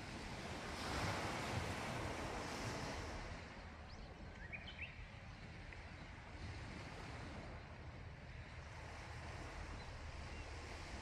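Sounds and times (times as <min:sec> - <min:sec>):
sea waves washing over rocks: 0:00.0 - 0:03.7
wind rumble on microphone: 0:00.0 - 0:11.0.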